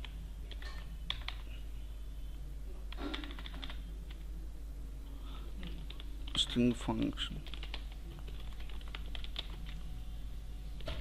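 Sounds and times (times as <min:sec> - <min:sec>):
steady low hum: 0:00.0 - 0:11.0
keyboard keystrokes clicking: 0:02.9 - 0:03.8, 0:05.9 - 0:09.8.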